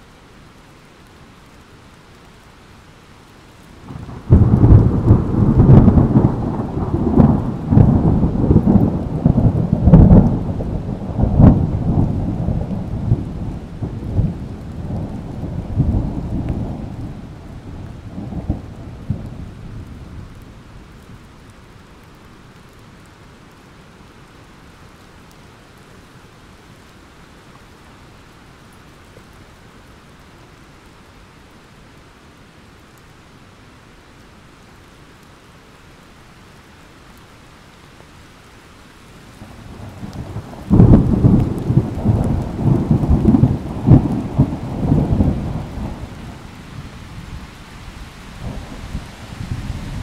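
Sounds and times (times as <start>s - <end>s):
steady rain: 0.0s - 50.0s
thunder rolling booms: 3.9s - 12.4s, 39.9s - 46.0s.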